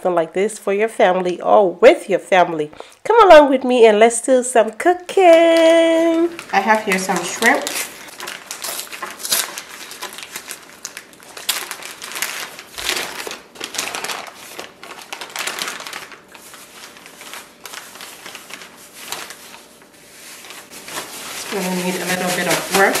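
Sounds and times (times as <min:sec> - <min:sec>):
plastic bag crinkling: 0:05.2 - 0:23.0.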